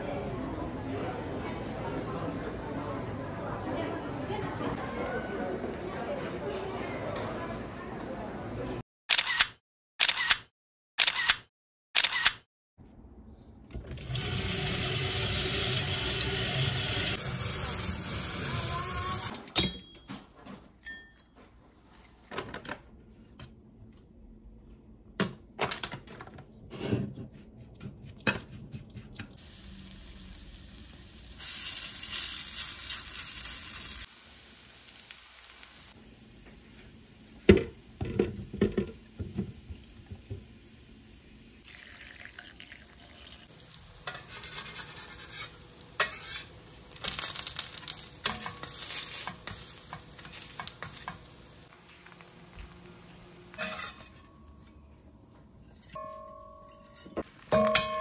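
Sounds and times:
pancakes sizzling in oil: 29.4 - 36.0, 43.4 - 52.8
fork scraping in a bowl: 44.0 - 46.5, 53.6 - 54.4
metal spatula scraping a pan: 44.0 - 46.6, 48.2 - 51.3, 53.5 - 54.5.

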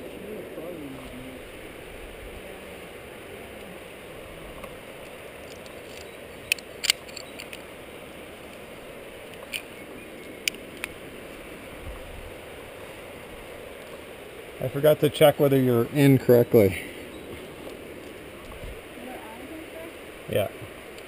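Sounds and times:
steady low hiss: 0.0 - 21.0
carabiners clicking: 5.5 - 7.6.

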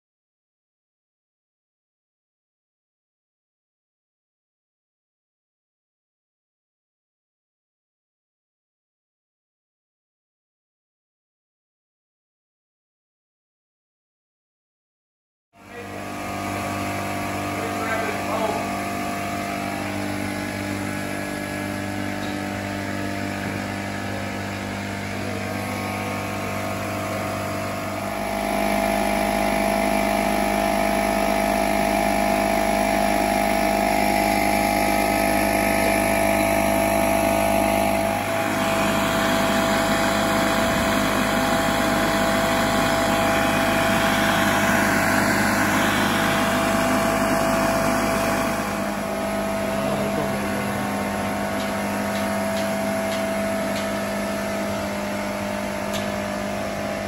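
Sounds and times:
engine-driven machinery humming: 15.6 - 57.0.

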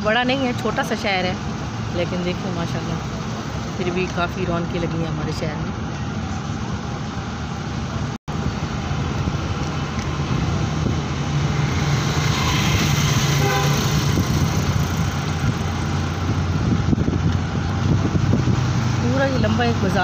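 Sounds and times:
vehicle engine and road noise: 0.0 - 20.0.

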